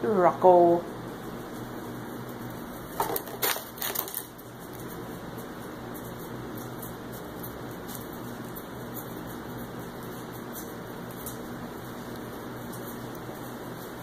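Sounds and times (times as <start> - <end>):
puppies chewing toy on tile: 1.3 - 14.0.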